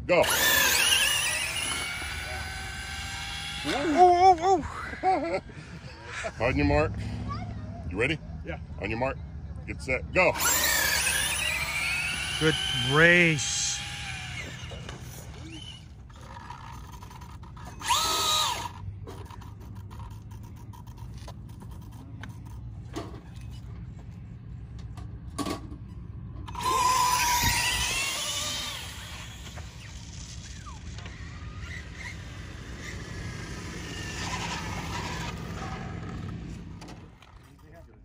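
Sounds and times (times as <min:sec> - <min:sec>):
electric motors whining: 0:00.0 - 0:05.9, 0:10.3 - 0:22.6, 0:26.4 - 0:37.6
low motor hum: 0:00.0 - 0:37.9
tire squeal: 0:26.6 - 0:36.2.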